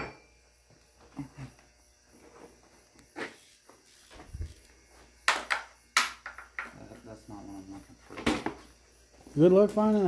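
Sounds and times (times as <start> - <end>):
hand tools knocking and clicking: 5.3 - 6.8.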